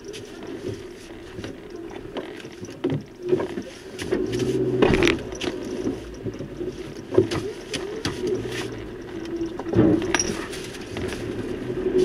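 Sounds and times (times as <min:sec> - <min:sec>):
knocks and rattles over bumps: 0:00.0 - 0:12.0
vehicle engine running: 0:04.0 - 0:12.0.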